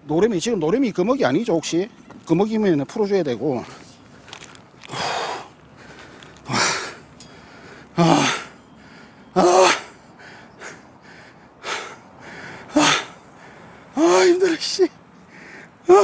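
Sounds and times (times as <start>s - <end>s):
man breathing hard: 4.2s - 14.0s, 15.2s - 15.9s.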